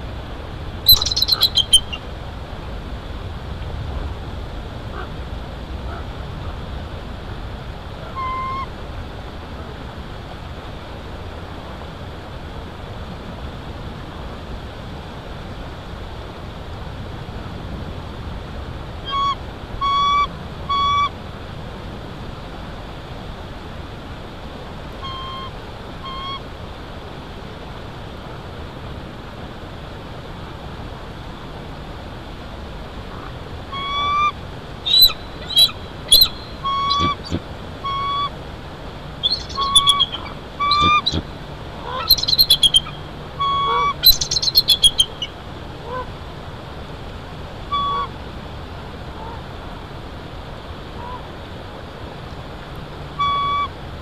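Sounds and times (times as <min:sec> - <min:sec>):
steady background hiss: 0:00.0 - 0:54.0
eagle squeaky calls: 0:00.9 - 0:02.0, 0:08.1 - 0:08.7, 0:19.1 - 0:21.1, 0:25.0 - 0:26.4, 0:33.7 - 0:38.3, 0:39.2 - 0:45.4, 0:47.7 - 0:48.1, 0:53.2 - 0:53.7.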